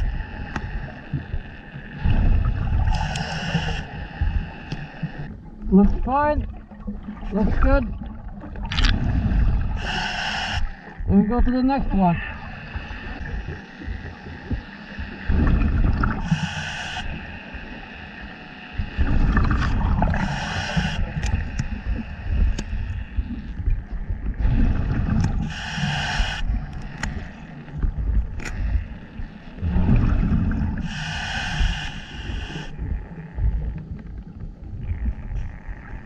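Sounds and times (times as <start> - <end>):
diver breathing through regulator: 0.0 - 5.4, 8.9 - 11.0, 12.3 - 23.7, 24.4 - 33.0
exhaled air bubbling: 0.0 - 17.7, 18.8 - 36.0.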